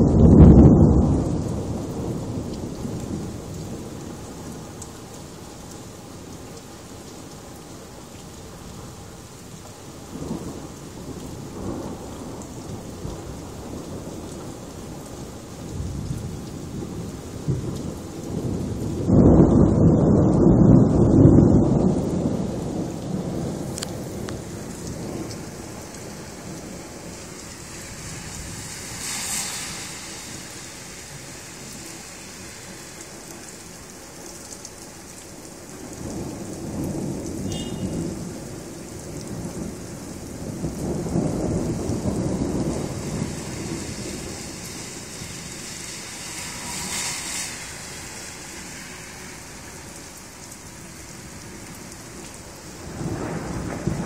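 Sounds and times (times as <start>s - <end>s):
thunder rumbling: 0.0s - 6.4s, 8.4s - 54.0s
rain falling: 0.0s - 54.0s.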